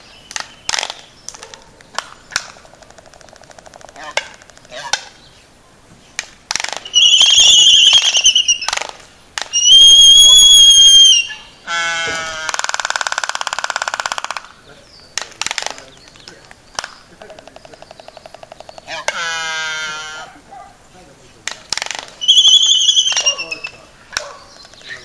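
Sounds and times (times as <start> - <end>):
albatross bill clacks: 0.0 - 5.2, 6.2 - 9.7, 12.0 - 19.4, 21.4 - 25.0
buzzing rattle bird call: 2.1 - 5.3, 6.7 - 14.6, 22.0 - 25.0
high whistle-like bird call: 6.8 - 8.8, 9.5 - 11.6, 22.2 - 23.9.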